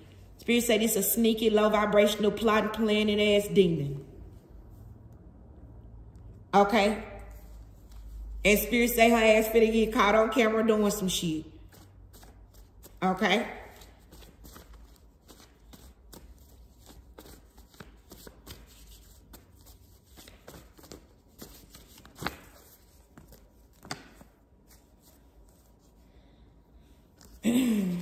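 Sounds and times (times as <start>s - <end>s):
cards being shuffled: 13.7s - 25.3s.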